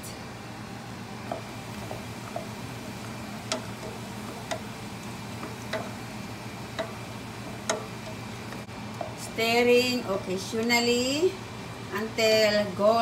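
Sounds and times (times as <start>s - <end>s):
steady low hum: 0.0s - 13.0s
spatula clicking against pot: 1.3s - 6.1s, 6.7s - 9.2s.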